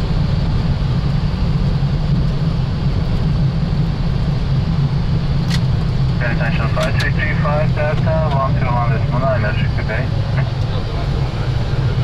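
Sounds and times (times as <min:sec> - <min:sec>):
rumble of wheels and engines: 0:00.0 - 0:12.0.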